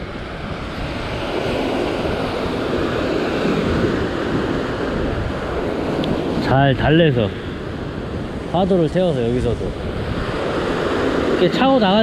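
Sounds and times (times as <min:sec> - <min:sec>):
ocean surf breaking on rocks: 0:00.0 - 0:12.0
wind on microphone: 0:00.0 - 0:12.0.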